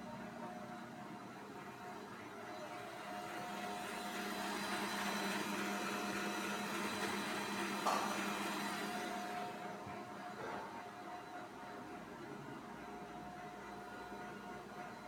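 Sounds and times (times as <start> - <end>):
electric mixer motor running: 2.9 - 9.6.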